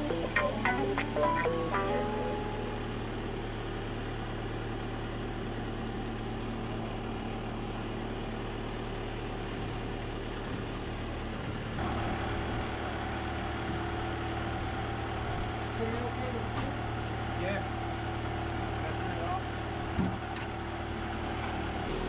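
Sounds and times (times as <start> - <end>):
higher engine whine: 0.0 - 7.4, 21.1 - 22.0
boat lift engine humming: 0.0 - 22.0.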